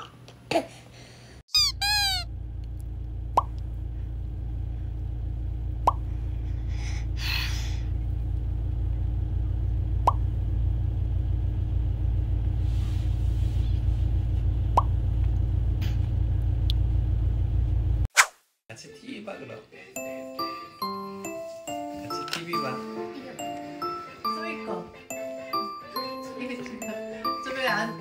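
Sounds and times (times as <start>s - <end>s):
car cabin road rumble: 1.7s - 18.1s.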